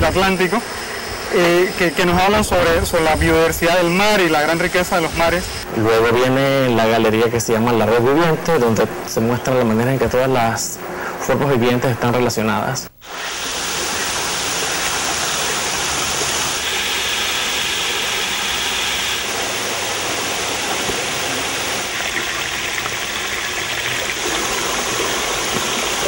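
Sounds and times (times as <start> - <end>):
stream running over rocks: 13.0 - 26.0.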